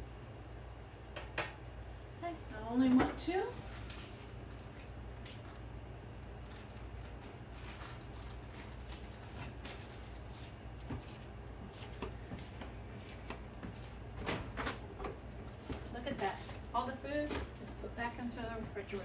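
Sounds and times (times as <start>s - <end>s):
steady low hum: 0.0s - 19.0s
packaging rustling: 3.5s - 12.4s.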